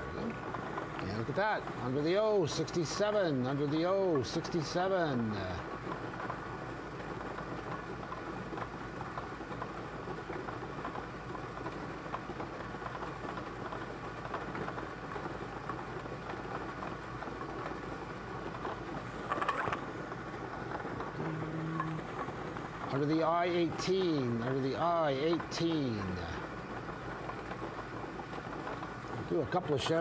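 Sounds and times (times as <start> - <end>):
balls rattling and clicking: 7.3 - 30.0.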